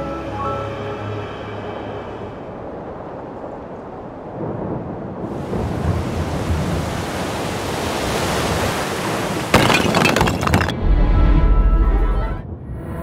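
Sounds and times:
rushing wind noise: 1.0s - 9.5s.

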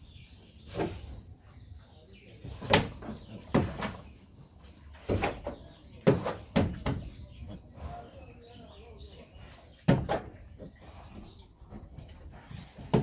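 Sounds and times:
knocks and rattles of wooden boards: 2.4s - 4.1s, 5.0s - 7.2s, 9.8s - 10.7s.

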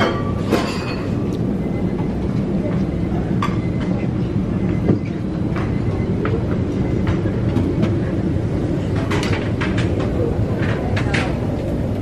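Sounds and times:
dishes clinking: 0.0s - 1.3s, 3.3s - 4.0s.

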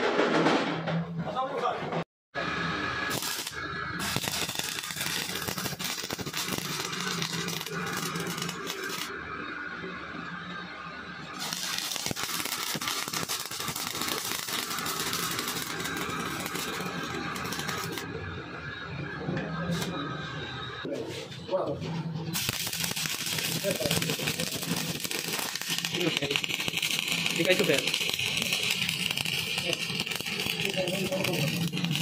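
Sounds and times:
welding arc crackling: 2.4s - 10.6s, 11.2s - 18.6s, 22.2s - 32.0s.

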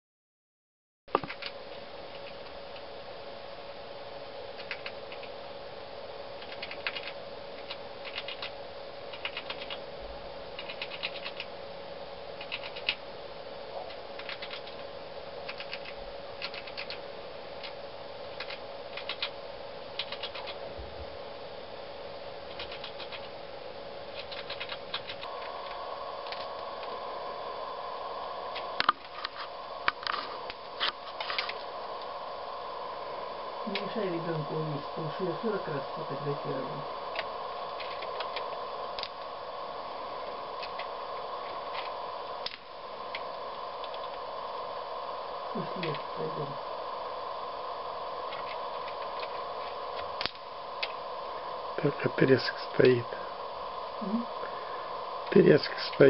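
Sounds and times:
steady hum: 1.1s - 56.0s
squirrel gnawing and cracking: 1.2s - 2.9s, 4.5s - 5.4s, 6.4s - 9.9s, 10.5s - 11.5s, 12.4s - 13.0s, 13.7s - 17.0s, 17.6s - 20.6s, 22.4s - 23.4s, 24.0s - 27.0s, 28.5s - 32.1s, 37.1s - 39.3s, 40.2s - 44.2s, 48.3s - 51.0s.

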